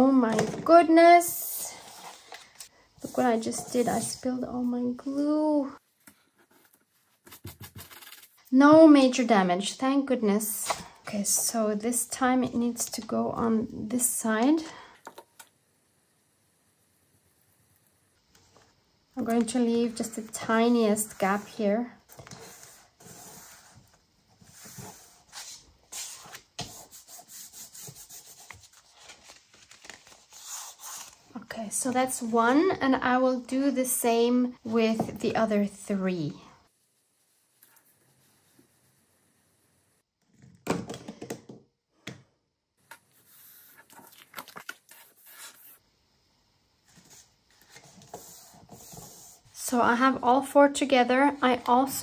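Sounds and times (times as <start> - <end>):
paper rustling and scraping: 6.4 - 8.4, 24.4 - 31.3
paper rustling: 27.8 - 31.2, 43.2 - 45.8.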